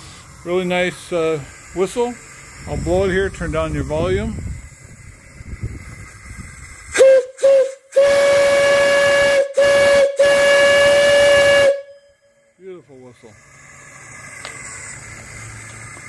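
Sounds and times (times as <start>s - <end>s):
rush of steam: 0.0s - 11.9s, 12.6s - 16.0s
steam whistle blasts: 6.9s - 12.4s.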